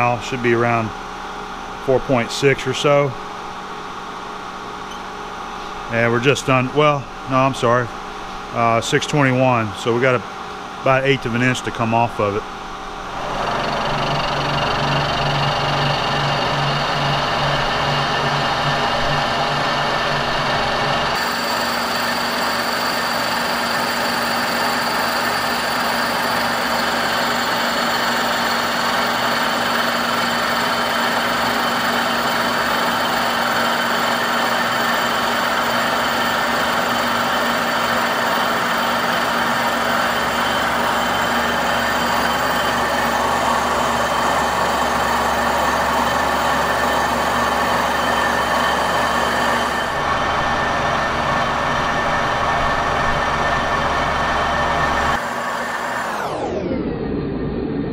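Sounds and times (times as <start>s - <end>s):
machine drive hum: 0.0s - 57.9s
milling cutter grinding metal: 13.1s - 56.6s.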